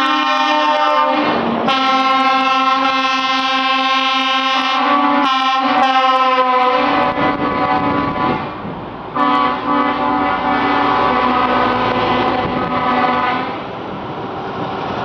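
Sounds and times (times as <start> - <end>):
truck air horns blasting: 0.0 - 13.6
trucks driving past: 0.0 - 15.0.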